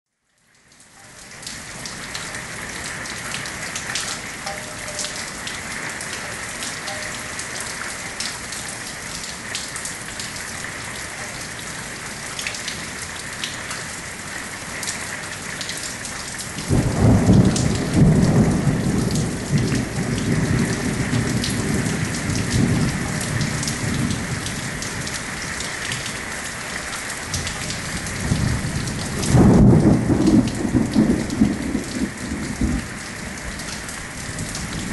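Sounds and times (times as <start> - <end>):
steady rain falling: 0.1 - 34.9
low rumble of thunder: 16.6 - 26.1, 27.3 - 34.9.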